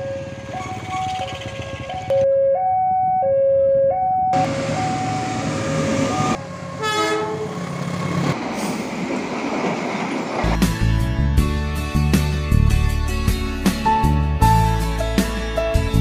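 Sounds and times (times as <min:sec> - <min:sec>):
passing train rumble: 0:00.0 - 0:02.2, 0:04.4 - 0:11.4
train horn blast: 0:06.8 - 0:07.5.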